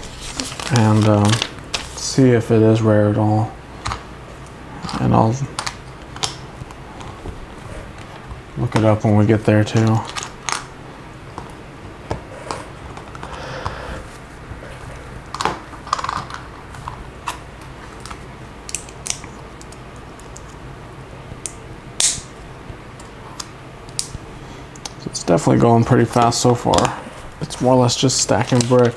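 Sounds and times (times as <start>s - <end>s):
loose plastic pieces rustling: 0.0s - 2.2s, 26.0s - 28.9s.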